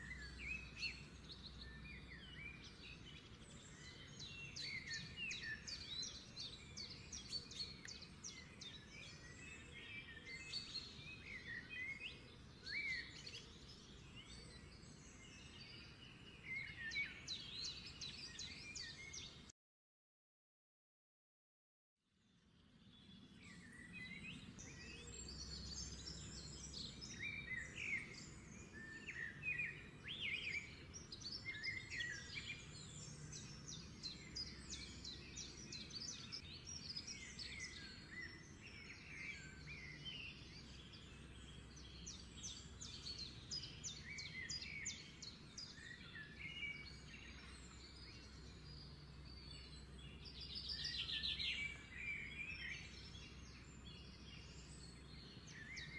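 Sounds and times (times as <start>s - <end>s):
birds chirping and singing: 0.0s - 19.5s, 22.6s - 55.9s.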